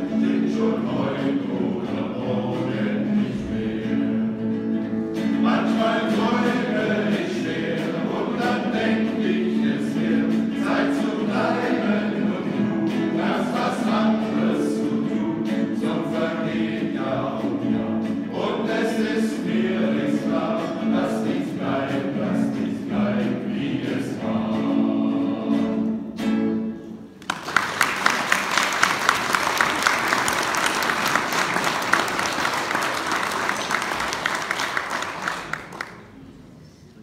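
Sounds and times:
male choir singing: 0.0 - 4.6, 5.3 - 26.0
audience applauding: 27.2 - 36.2.

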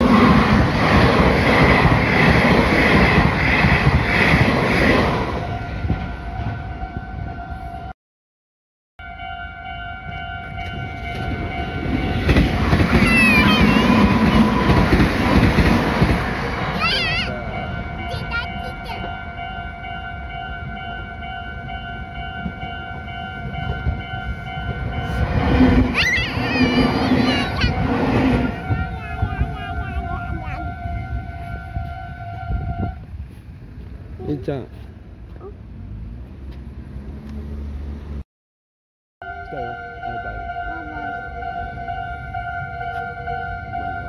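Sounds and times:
train wheels rumbling on rail: 0.0 - 7.1, 10.0 - 37.5
crossing warning bell ringing: 9.0 - 15.2, 16.9 - 33.0, 39.2 - 44.0.

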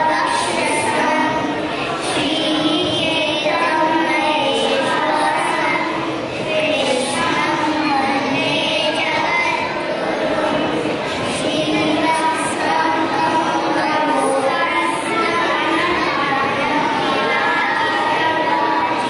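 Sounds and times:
children singing together: 0.0 - 19.0.

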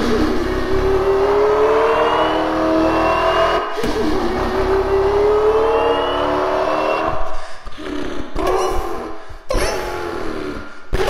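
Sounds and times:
person imitating engine revving: 7.7 - 11.0.

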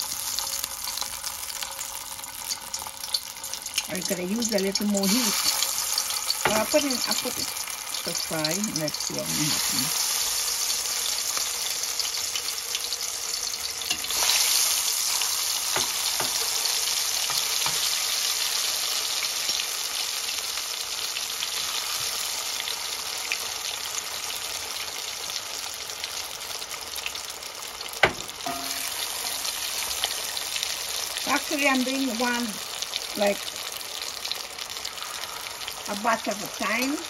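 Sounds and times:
potatoes deep-frying in oil: 0.0 - 37.0.

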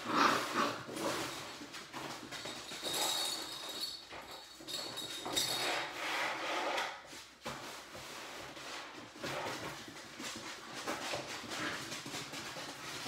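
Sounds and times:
scraping on wooden floor: 0.0 - 4.3, 5.2 - 13.0.

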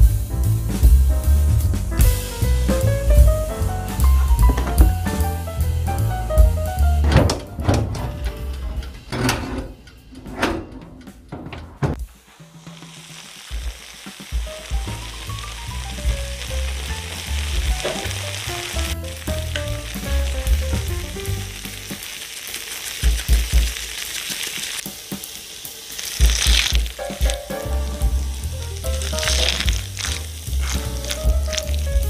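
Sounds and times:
background music: 0.0 - 9.1, 14.4 - 22.1, 26.3 - 32.0
food sizzling in baking dish: 12.1 - 32.0
spatula scraping crunchy topping: 28.8 - 32.0.

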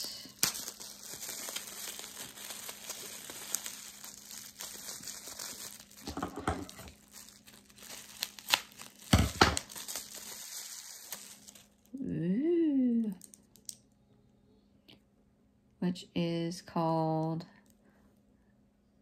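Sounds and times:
packaging crinkling and rustling: 0.0 - 12.0.

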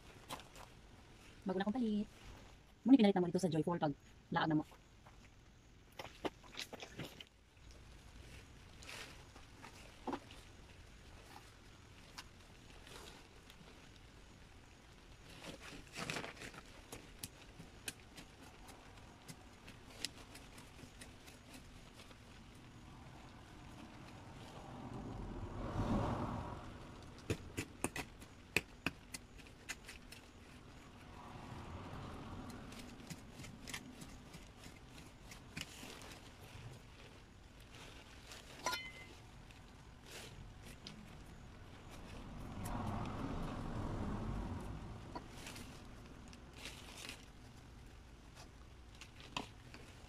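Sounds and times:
faint rustling of plants: 0.0 - 50.0
plant rustling: 29.3 - 50.0
trowel digging in soil: 37.7 - 39.3.

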